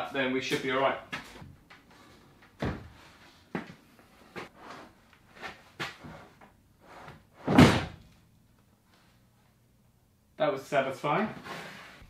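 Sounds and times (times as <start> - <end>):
wooden knocks and clunks: 2.5 - 3.0.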